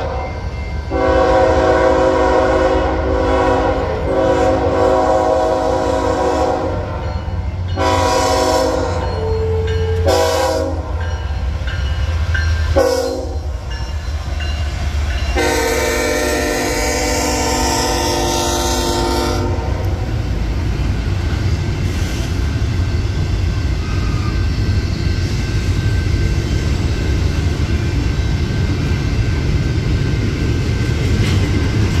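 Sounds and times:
freight train rumbling past: 0.0s - 32.0s
locomotive air horn blasts: 0.9s - 7.0s, 7.8s - 11.0s, 12.8s - 13.5s, 15.4s - 20.1s.

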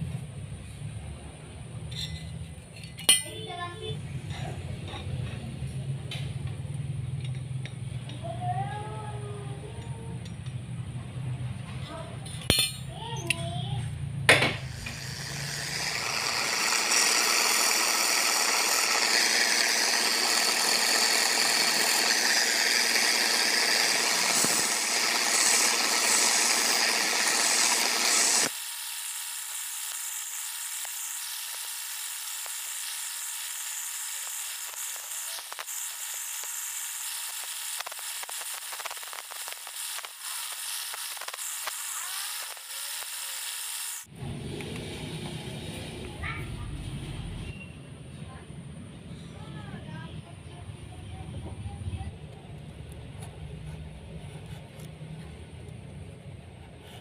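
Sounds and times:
belt sander running: 14.6s - 44.1s
loud steady machine noise: 14.6s - 44.5s
nail scraping on sanding belt: 14.8s - 44.1s.

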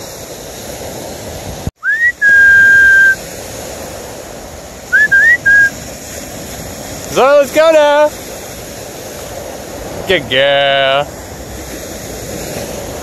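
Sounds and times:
wind and surf hiss: 0.0s - 13.0s
person whistling: 1.8s - 3.2s, 4.9s - 5.7s.

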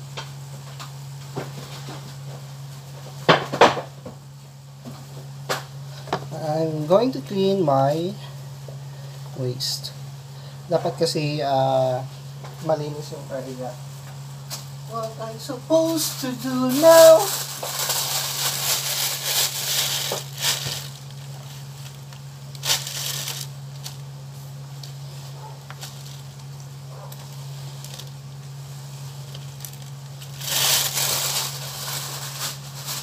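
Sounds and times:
steady low hum: 0.0s - 33.0s
plastic bag crinkling: 15.7s - 24.1s, 27.2s - 28.2s, 29.2s - 33.0s.

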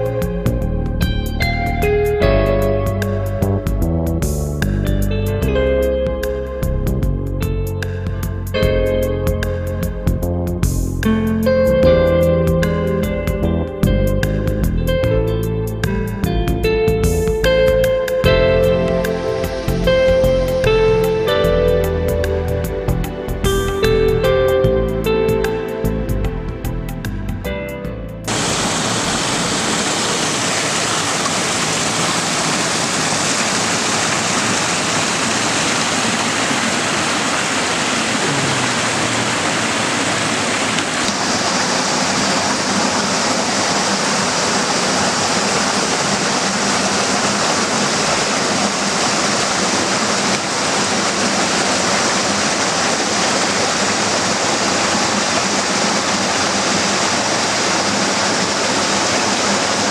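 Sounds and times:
water rushing over rocks: 28.3s - 59.9s.

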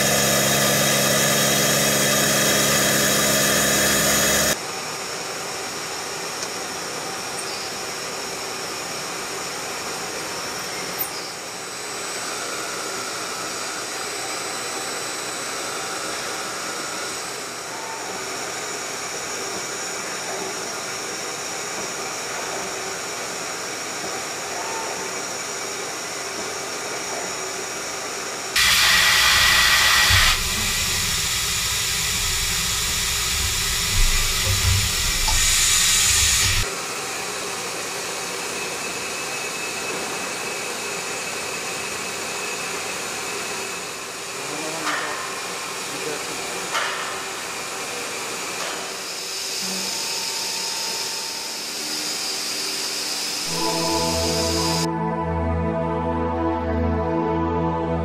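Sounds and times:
machine tool hiss and hum: 0.0s - 54.9s
loud rushing hiss: 28.6s - 36.7s.

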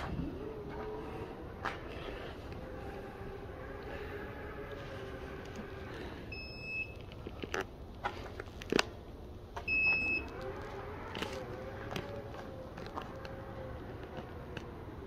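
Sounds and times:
electric motor hum: 0.0s - 6.4s, 9.4s - 15.0s.

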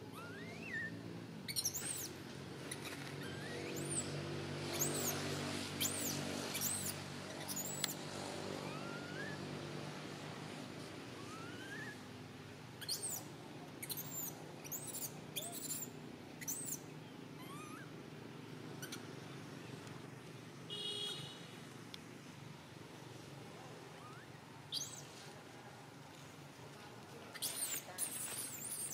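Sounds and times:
baby monkey screaming: 0.1s - 0.9s, 1.5s - 5.2s, 5.8s - 8.0s, 8.6s - 9.4s, 11.2s - 12.1s, 12.8s - 13.2s, 13.8s - 16.8s, 17.4s - 17.9s, 24.0s - 25.0s, 27.3s - 28.9s.

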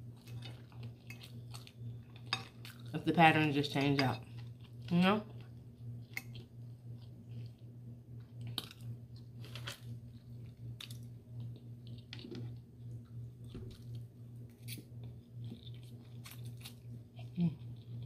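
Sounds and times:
chewing food: 0.0s - 3.0s, 4.1s - 18.0s
steady low hum: 0.0s - 18.0s.

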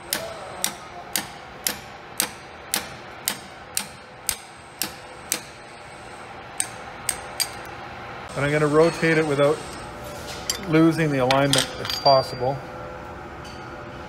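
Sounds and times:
hammer tapping steel punch: 0.1s - 5.6s.

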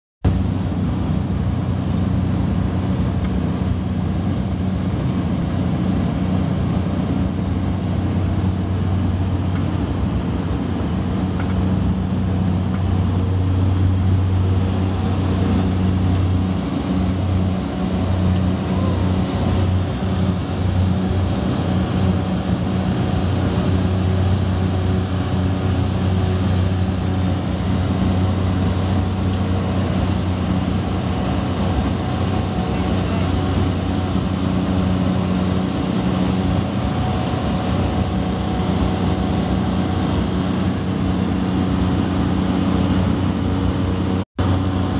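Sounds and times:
propeller plane engine drone: 0.2s - 44.9s.

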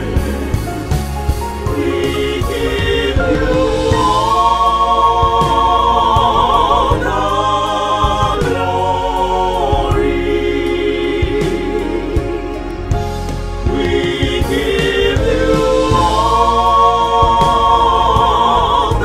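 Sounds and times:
gospel choir singing: 0.0s - 19.0s
low chordal accompaniment: 0.0s - 19.0s.

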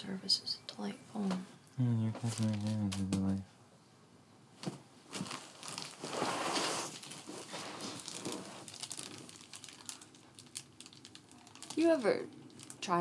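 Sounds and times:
material crinkling and rustling: 2.2s - 3.3s, 4.6s - 13.0s.

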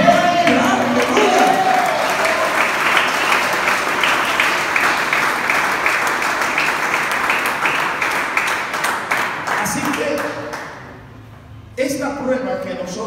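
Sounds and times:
congregation clapping: 0.0s - 11.0s.

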